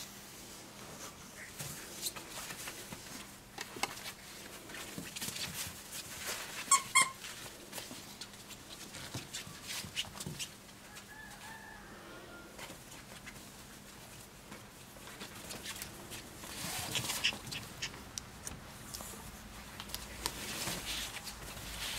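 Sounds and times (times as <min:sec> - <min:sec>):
puppies scuffling and pattering: 0:00.8 - 0:10.7, 0:12.6 - 0:21.9
puppy whining: 0:06.7 - 0:07.2.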